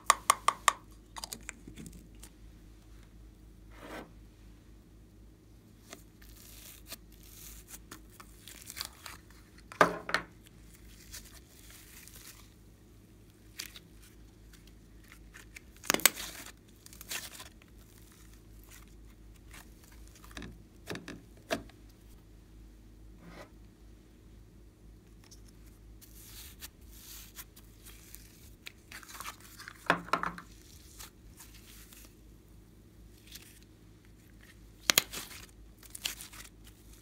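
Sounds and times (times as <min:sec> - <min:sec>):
sticky slime peeling: 0:05.8 - 0:09.6, 0:34.4 - 0:37.0.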